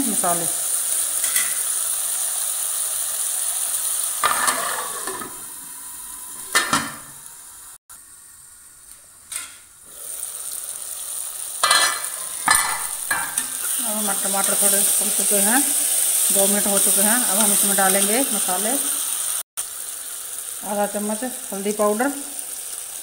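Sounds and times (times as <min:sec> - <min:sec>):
food sizzling in oil: 0:00.0 - 0:23.0
metal lid clinking on pan: 0:11.6 - 0:13.4.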